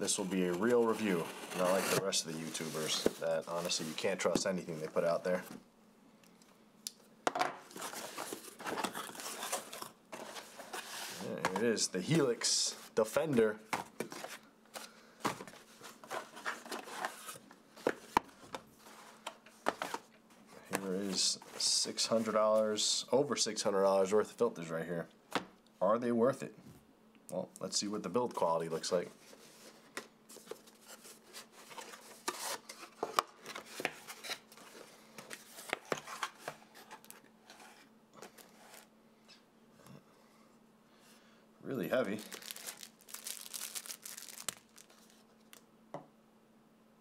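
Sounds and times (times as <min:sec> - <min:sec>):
cardboard boxes rustling and scraping: 0:00.3 - 0:05.5, 0:07.7 - 0:13.0, 0:13.7 - 0:22.4, 0:29.2 - 0:38.9
cardboard rubbing and sliding: 0:00.6 - 0:04.2.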